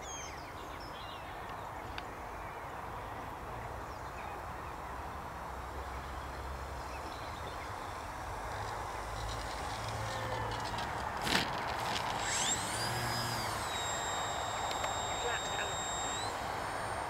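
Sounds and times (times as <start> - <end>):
rc plane electric motor whine: 5.2 - 17.0.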